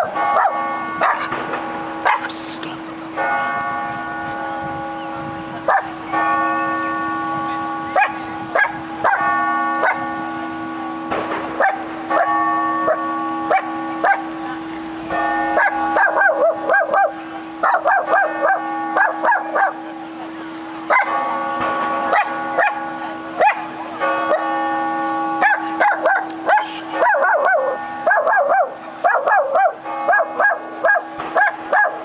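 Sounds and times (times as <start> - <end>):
clock-tower bells striking: 0.0 - 32.0
dog barking: 0.4 - 1.3, 2.0 - 2.3, 5.7 - 5.9, 8.0 - 10.0, 11.6 - 12.3, 12.9 - 14.2, 15.6 - 19.8, 20.9 - 21.1, 22.1 - 22.8, 23.4 - 23.7, 25.4 - 32.0.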